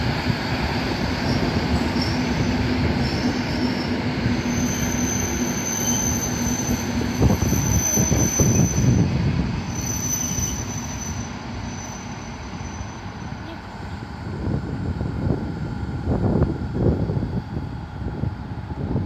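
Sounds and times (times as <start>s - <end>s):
train wheels squealing on rails: 0.1s - 14.1s.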